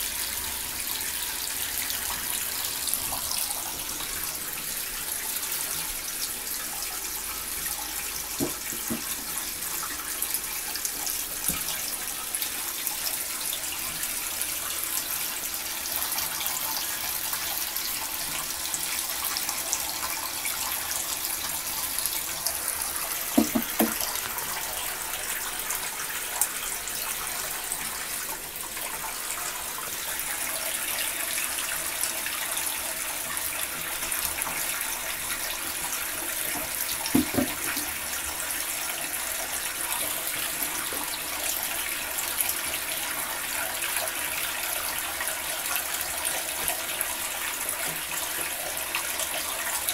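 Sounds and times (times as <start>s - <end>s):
tap water splashing in tub: 7.9s - 12.5s, 21.9s - 26.6s, 35.4s - 38.4s.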